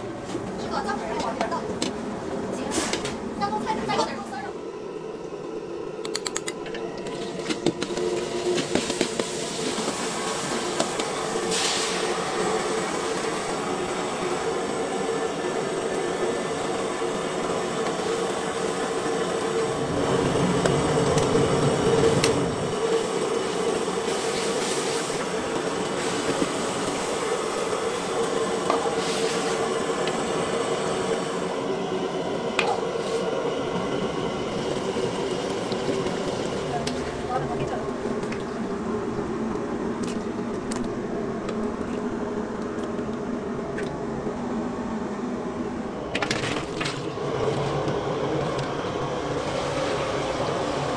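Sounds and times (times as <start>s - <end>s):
wok stove and extractor roar: 0.0s - 50.9s.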